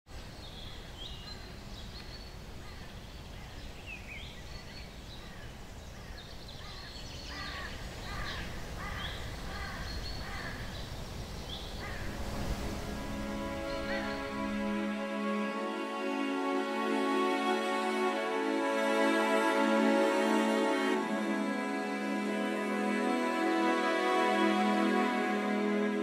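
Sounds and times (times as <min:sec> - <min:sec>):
birds chirping: 0:00.2 - 0:16.5
low repeated bird calls: 0:00.2 - 0:16.5.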